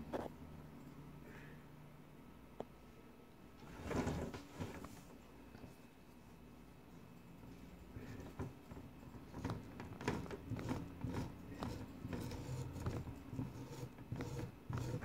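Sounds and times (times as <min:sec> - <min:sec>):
grout tool clicking and scraping: 0:08.0 - 0:15.0.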